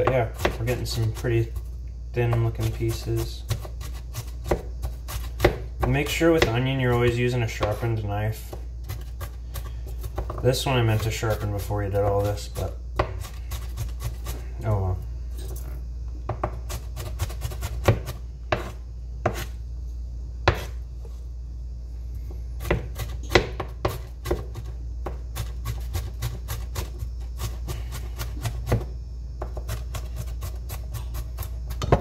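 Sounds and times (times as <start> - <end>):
knife chopping on plastic board: 0.0 - 1.2, 2.2 - 7.8, 12.0 - 14.4, 16.3 - 19.5, 20.4 - 20.8, 22.6 - 26.9.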